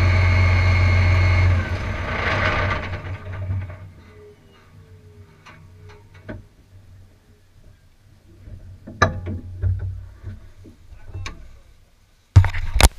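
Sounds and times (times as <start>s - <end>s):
tractor engine idling: 0.0s - 4.0s.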